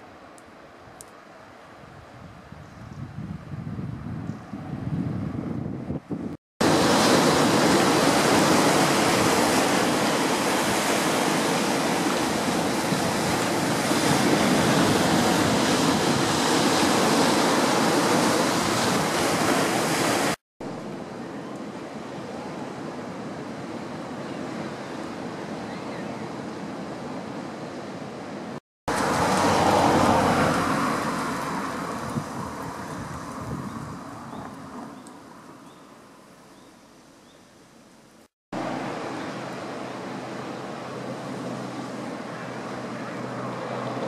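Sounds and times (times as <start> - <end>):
steady outdoor hiss: 0.0 - 44.0
surf breaking on beach: 6.6 - 20.4, 28.9 - 34.0.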